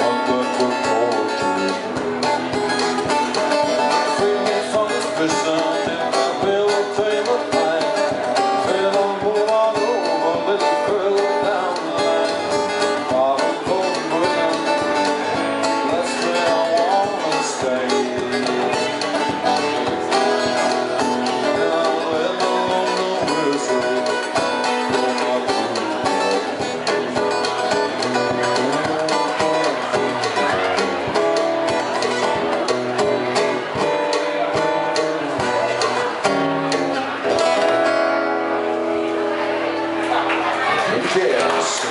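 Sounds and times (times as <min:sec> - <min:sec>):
acoustic guitars playing country: 0:00.0 - 0:41.9.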